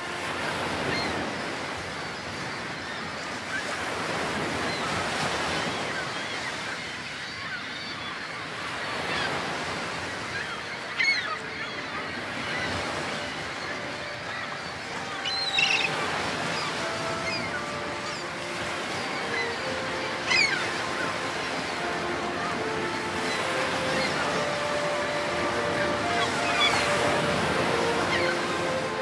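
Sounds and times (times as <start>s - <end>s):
loud bird call: 10.3s - 29.0s.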